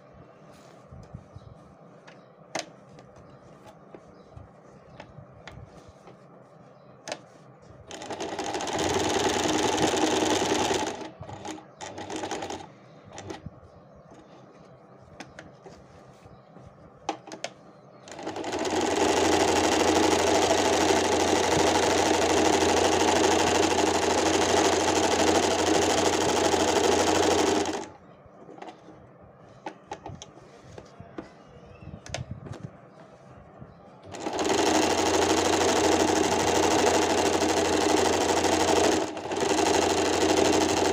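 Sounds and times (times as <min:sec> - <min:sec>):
electric sewing machine running: 0:07.9 - 0:13.3, 0:18.1 - 0:27.9, 0:34.1 - 0:40.9.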